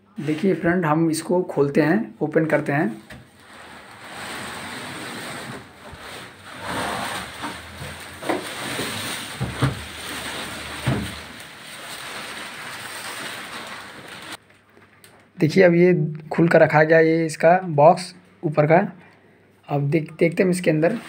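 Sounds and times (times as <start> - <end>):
cardboard carton scraping and rustling: 3.4 - 14.4.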